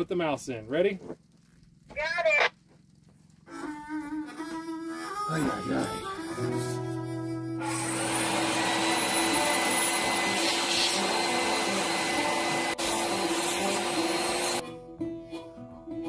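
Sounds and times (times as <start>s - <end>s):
harmonica music: 3.5s - 16.0s
shop vacuum running: 7.6s - 14.6s.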